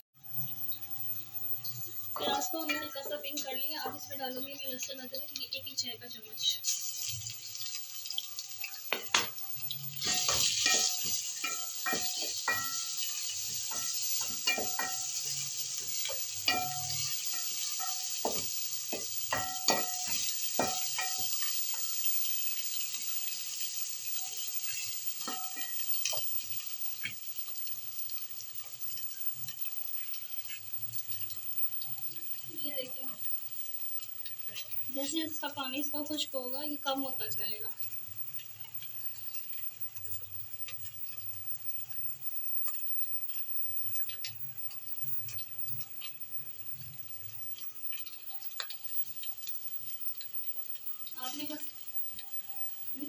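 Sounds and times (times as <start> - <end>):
onions sizzling in oil: 0.0 - 53.0
wooden spoon knocking metal pot: 8.9 - 9.4, 10.0 - 13.0, 13.6 - 21.4.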